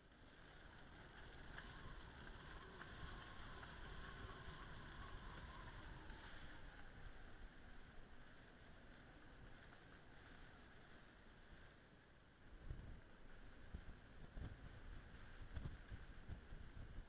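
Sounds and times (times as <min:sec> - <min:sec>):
wind gusting over water: 0:00.2 - 0:09.2, 0:12.6 - 0:17.0.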